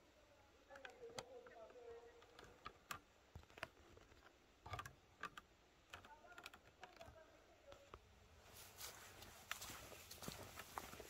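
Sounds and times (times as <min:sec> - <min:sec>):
footsteps on dry leaves: 0:08.4 - 0:11.0.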